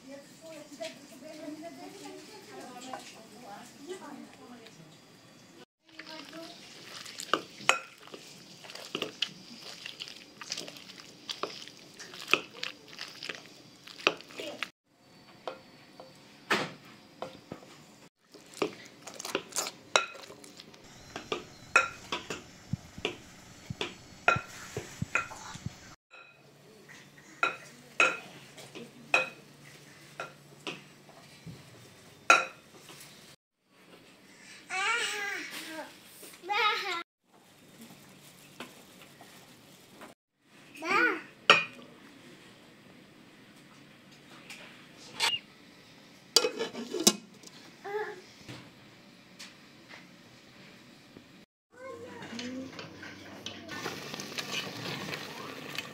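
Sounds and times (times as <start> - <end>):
masher squishing eggplant: 5.8 - 14.7, 18.2 - 25.8
spoon stirring thick mixture: 5.8 - 14.7, 18.2 - 25.9.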